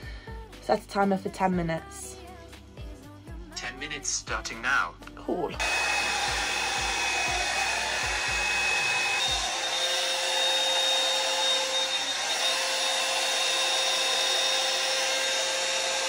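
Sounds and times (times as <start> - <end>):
hair dryer whining: 5.6 - 16.0.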